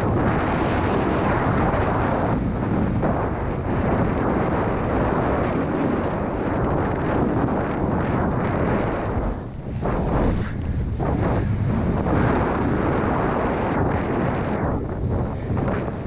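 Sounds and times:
wind rushing over microphone: 0:00.0 - 0:16.0
snowboard hissing through snow: 0:00.1 - 0:16.0.

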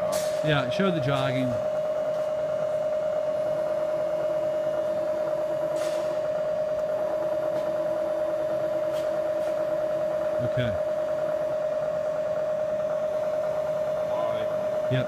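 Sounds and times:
milling machine high whine: 0:00.0 - 0:15.0.

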